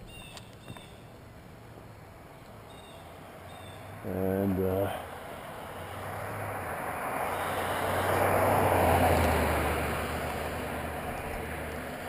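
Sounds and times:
car driving past: 3.0s - 12.0s.

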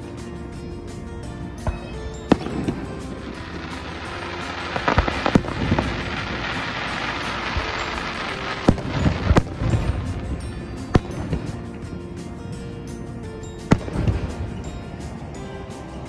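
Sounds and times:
fireworks crackling: 0.0s - 16.0s
fireworks banging: 1.5s - 12.0s, 13.6s - 16.0s.

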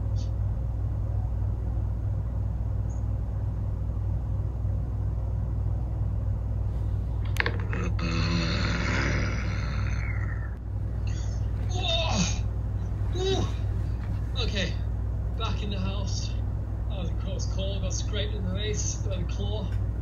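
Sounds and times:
steady low hum: 0.0s - 20.0s
rustling near microphone: 12.6s - 14.5s.

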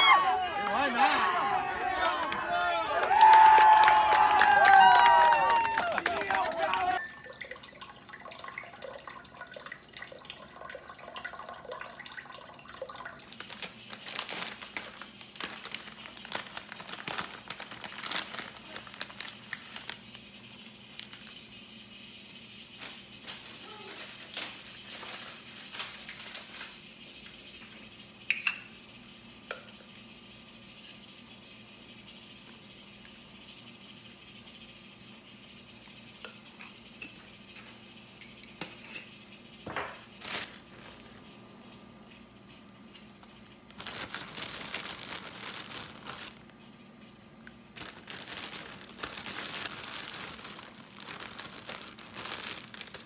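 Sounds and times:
water running into a pot: 6.9s - 16.4s.

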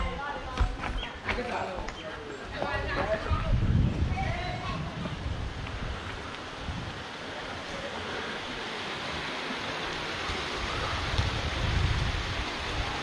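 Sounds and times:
wind buffeting microphone: 0.0s - 13.0s
water rushing in a stream: 5.2s - 13.0s.

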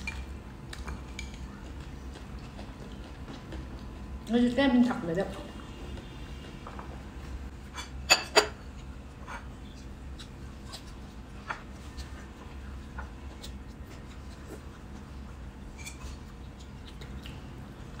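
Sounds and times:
chewing and mouth noises: 0.0s - 4.3s, 11.8s - 18.0s.

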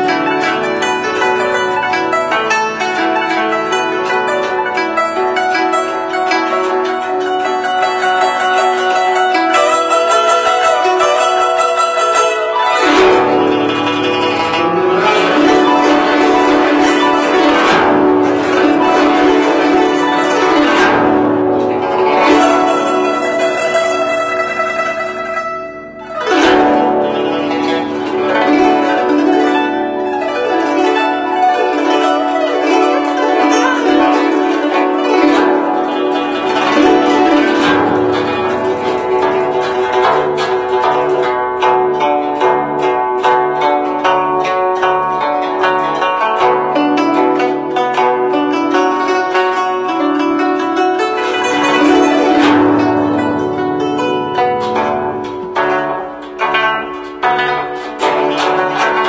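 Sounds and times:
plucked zither: 0.0s - 59.0s.

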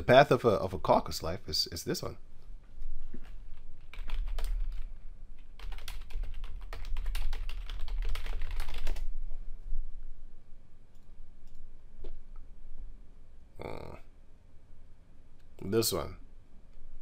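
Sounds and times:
keyboard typing: 3.2s - 9.1s
low hum: 9.0s - 15.6s.

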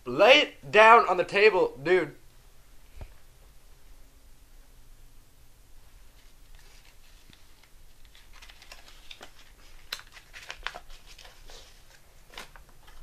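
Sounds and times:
playing cards rustling and clicking: 6.2s - 13.0s.

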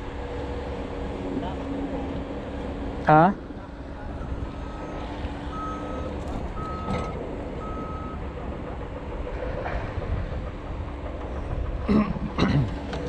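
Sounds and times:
low engine rumble: 0.0s - 13.0s
reversing alarm beeping: 4.1s - 8.4s.

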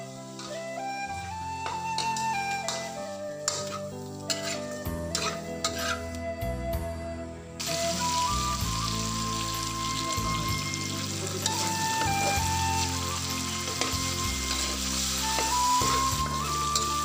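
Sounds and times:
meat sizzling in a wok: 0.0s - 6.1s, 7.6s - 17.0s
metal spatula scraping pan: 1.9s - 6.1s, 13.6s - 17.0s.

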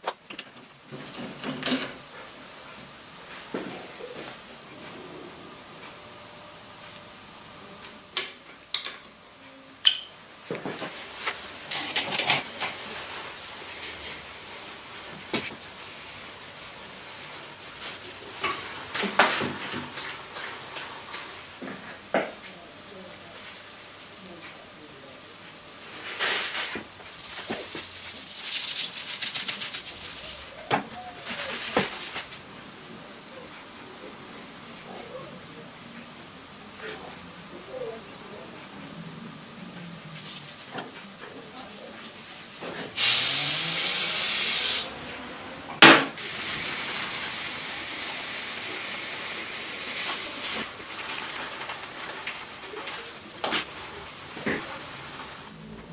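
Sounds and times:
dry rustling and scraping: 26.0s - 32.4s, 50.0s - 55.5s
fast crackling rattle: 27.1s - 30.5s.

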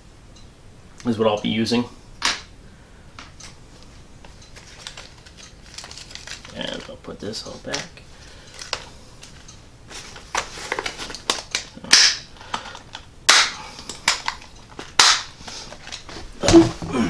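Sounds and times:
plastic boxes clicking and rattling: 4.6s - 9.4s.

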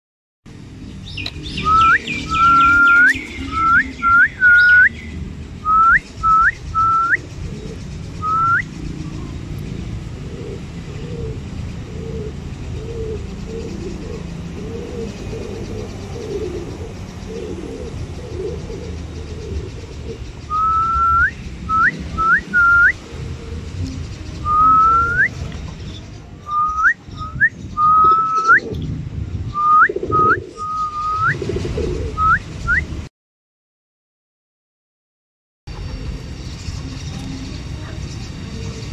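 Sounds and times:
rising whistles: 1.5s - 5.0s, 5.6s - 7.2s, 8.2s - 8.7s, 20.5s - 23.0s, 24.4s - 25.4s, 26.4s - 28.7s, 29.5s - 31.5s, 32.2s - 33.0s.

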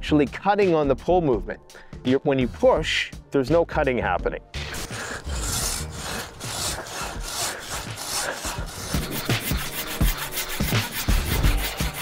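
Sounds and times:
hand saw rasping through log: 4.6s - 12.0s.

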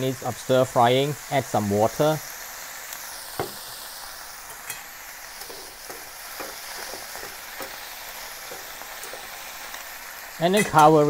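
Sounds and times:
broccoli sizzling in a wok: 0.0s - 11.0s
utensils tapping a pan: 3.4s - 3.6s, 4.5s - 9.6s, 10.4s - 11.0s.

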